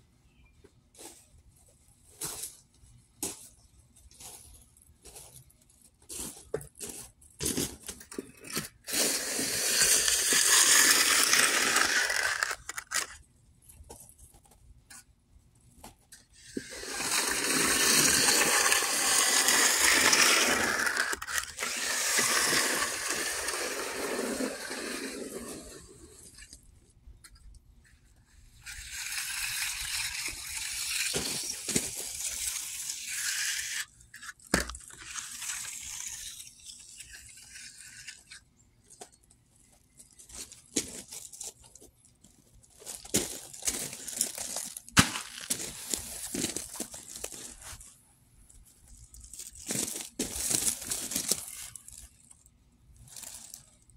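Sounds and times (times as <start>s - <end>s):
trowel scraping wet concrete: 7.5s - 13.2s, 16.4s - 26.5s, 28.6s - 38.5s.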